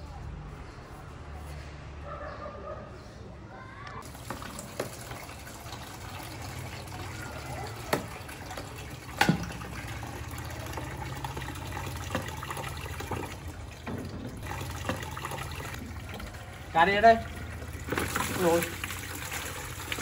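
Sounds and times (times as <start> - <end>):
water pouring into plastic basin: 4.0 - 20.0.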